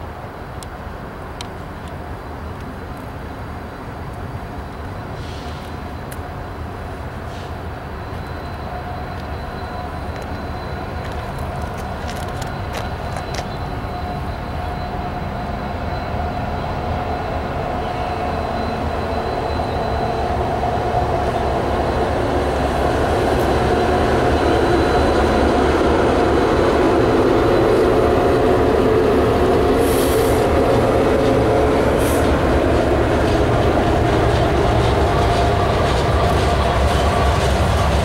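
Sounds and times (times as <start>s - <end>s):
diesel locomotive passing: 0.0s - 38.0s
freight cars rumbling on rails: 0.0s - 38.0s
short high hisses: 29.8s - 30.5s.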